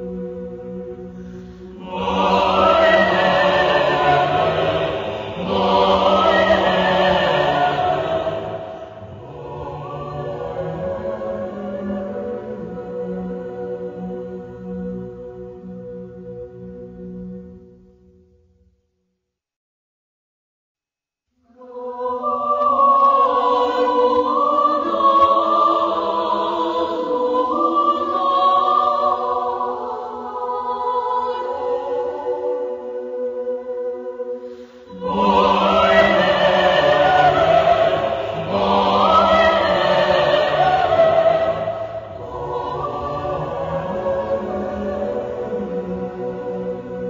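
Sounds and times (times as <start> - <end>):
choir singing: 0.0 - 17.8, 21.4 - 47.0.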